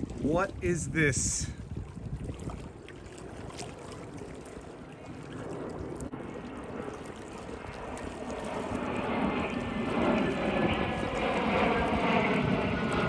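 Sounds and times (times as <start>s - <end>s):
jet aircraft flying overhead: 2.7s - 13.0s.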